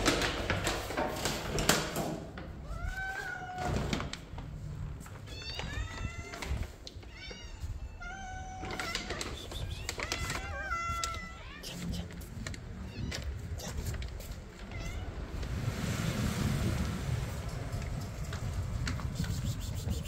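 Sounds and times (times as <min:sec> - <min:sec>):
kittens meowing: 0:05.3 - 0:12.1.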